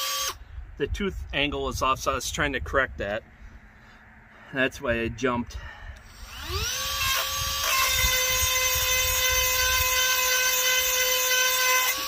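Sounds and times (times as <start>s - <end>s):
chain sharpener high whine: 0.0s - 0.4s, 6.0s - 12.0s.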